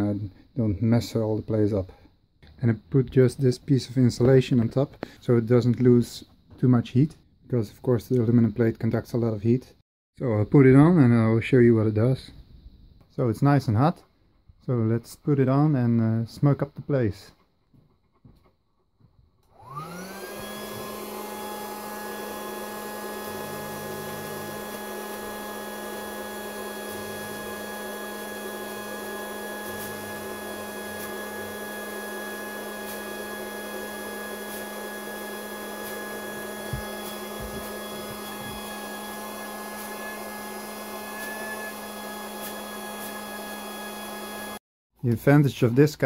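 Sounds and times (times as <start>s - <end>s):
air blower motor whine: 19.5s - 44.6s.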